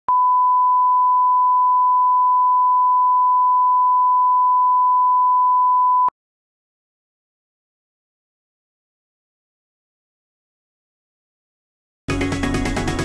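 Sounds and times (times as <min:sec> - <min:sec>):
reference tone beep: 0:00.1 - 0:06.2.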